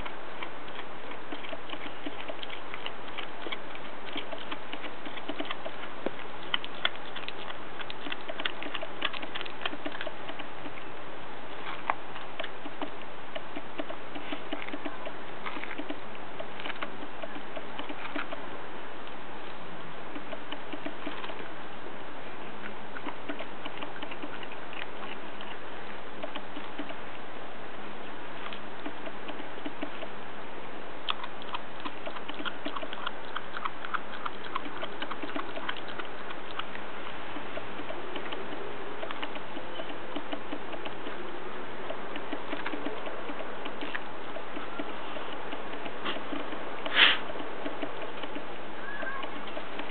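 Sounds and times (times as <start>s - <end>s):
puppy chewing: 0.0s - 49.9s
steady hiss: 36.1s - 49.9s.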